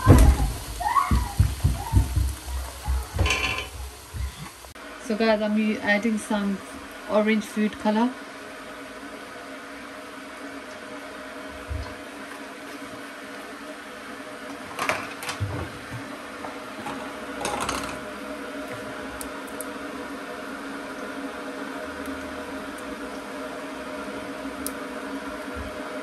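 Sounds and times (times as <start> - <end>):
cookware clattering: 3.2 - 3.8.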